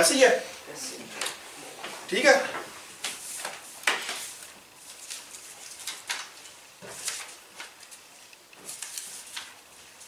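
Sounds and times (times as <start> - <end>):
paper sheets rustling: 1.2 - 10.0.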